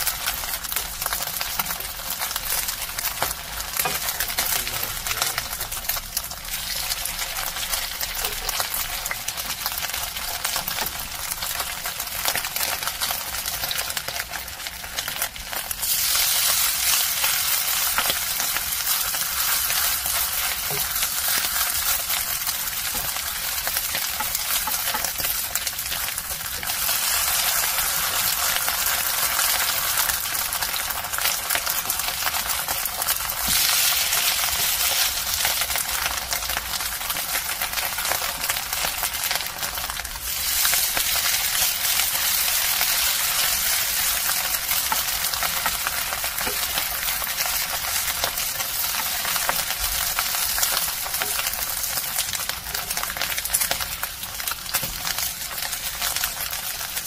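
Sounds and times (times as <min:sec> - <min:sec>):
patties sizzling in oil: 0:00.0 - 0:57.0.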